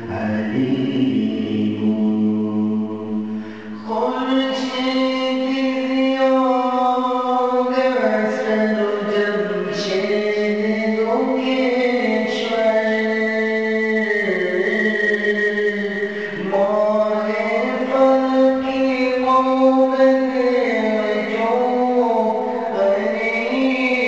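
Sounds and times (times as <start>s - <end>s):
voice chanting long notes: 11.3s - 20.4s.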